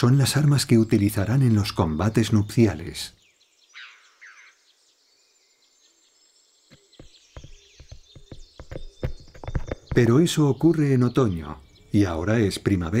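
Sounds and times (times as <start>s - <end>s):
faint insect and bird hiss: 0.0s - 13.0s
hooves clattering on rock: 6.7s - 10.4s.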